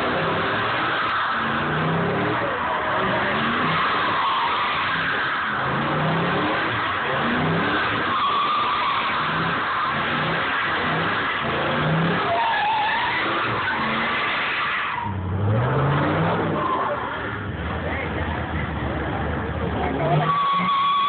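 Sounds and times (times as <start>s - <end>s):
engine revving: 0.0s - 12.4s, 13.0s - 20.7s
tyres squealing and skidding: 0.0s - 21.0s.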